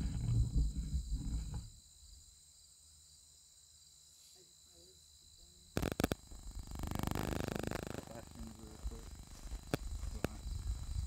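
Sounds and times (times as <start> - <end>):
crickets droning: 0.0 - 11.0
loud crackling noise burst: 5.8 - 11.0.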